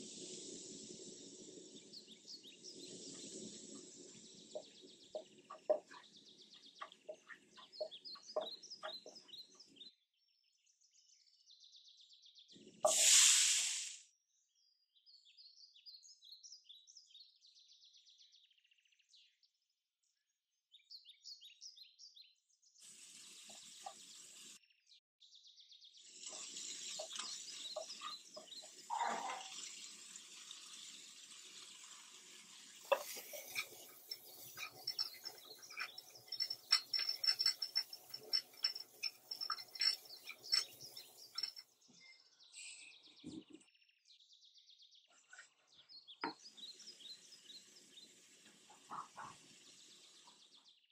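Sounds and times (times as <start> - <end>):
vegetables sizzling in a pan: 0.0 - 6.0, 12.8 - 14.0, 22.8 - 24.6, 26.0 - 41.6, 46.4 - 50.5
spatula clicking and scraping pan: 26.2 - 30.8, 31.4 - 41.6.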